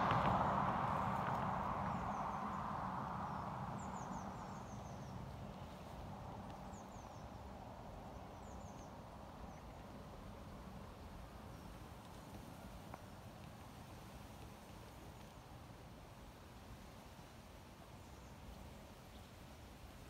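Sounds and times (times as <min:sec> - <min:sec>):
broad rushing noise: 0:00.0 - 0:04.7
low rumble: 0:00.0 - 0:05.2.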